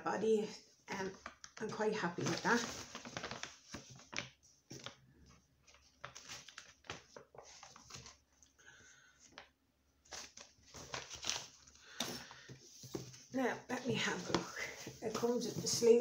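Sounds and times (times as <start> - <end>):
packaging rustling and clicking: 2.2 - 5.0, 10.1 - 13.2.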